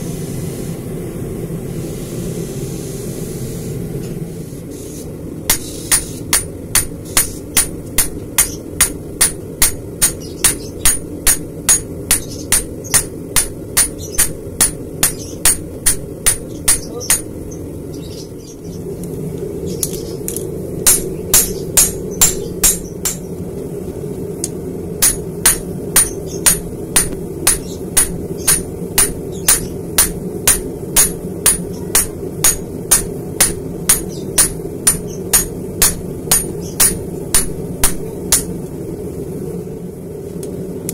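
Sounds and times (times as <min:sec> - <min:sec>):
hammer ringing on anvil: 0:05.5 - 0:17.3, 0:20.9 - 0:23.2, 0:25.0 - 0:38.5.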